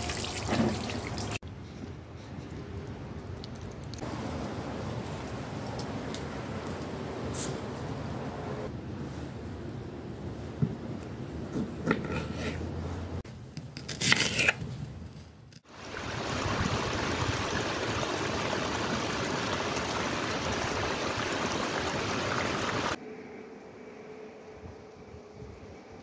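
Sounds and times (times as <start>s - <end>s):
stream splashing over rocks: 15.7s - 23.0s.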